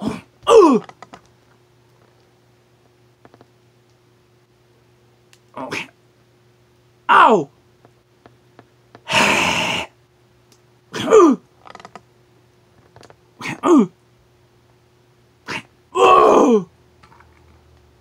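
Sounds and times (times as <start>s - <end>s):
man's high falling cries: 0.0s - 0.9s, 7.1s - 7.5s, 15.5s - 16.7s.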